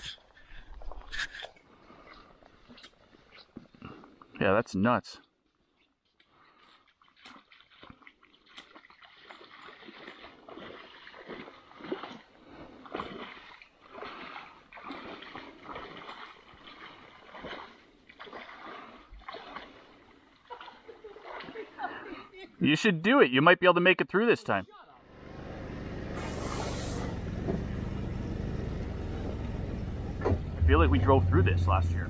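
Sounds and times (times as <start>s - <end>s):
water splashing: 6.3s - 22.2s, 25.0s - 32.0s.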